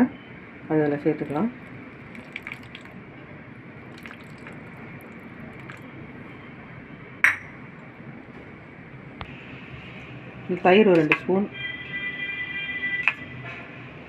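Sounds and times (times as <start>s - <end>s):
lemon juice pouring: 1.2s - 3.0s, 3.8s - 6.0s.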